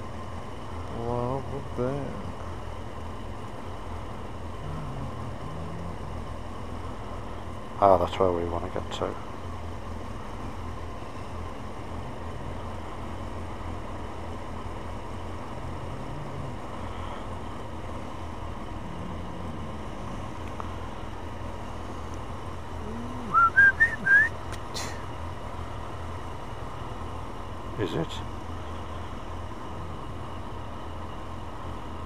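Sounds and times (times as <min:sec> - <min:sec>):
steady low rumble: 0:00.0 - 0:32.0
rising whistled notes: 0:23.3 - 0:24.4.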